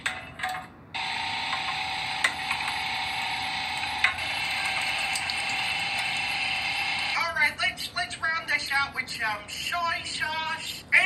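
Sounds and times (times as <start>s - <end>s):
electric meat grinder whining: 1.0s - 7.2s.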